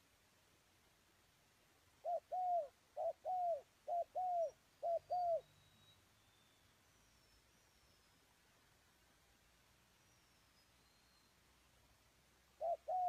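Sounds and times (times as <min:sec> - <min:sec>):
dove cooing: 0:02.0 - 0:05.4, 0:12.6 - 0:13.0.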